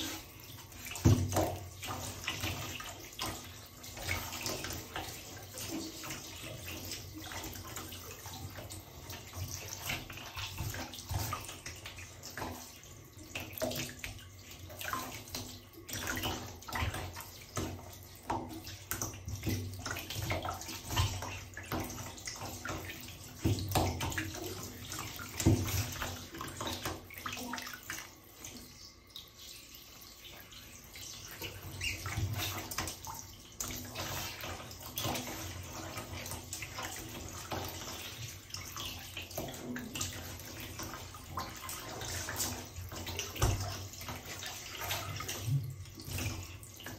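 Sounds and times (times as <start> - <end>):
water splashing in bathtub: 0.0 - 46.9.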